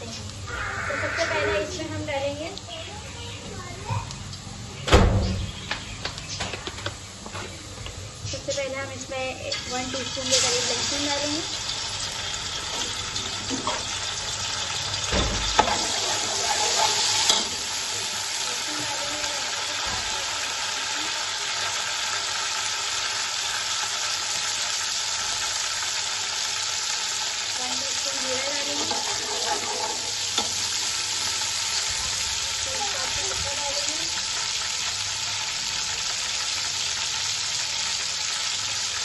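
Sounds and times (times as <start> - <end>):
garlic sizzling in hot oil: 0.0 - 4.8, 5.5 - 39.0.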